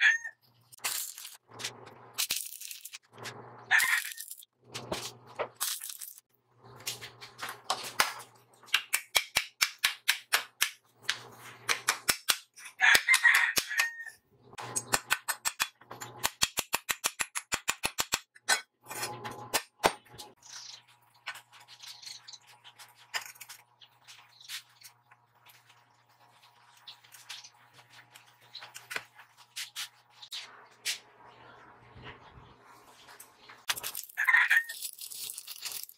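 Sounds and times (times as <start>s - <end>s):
steel parts clinking: 33.7s - 35.9s.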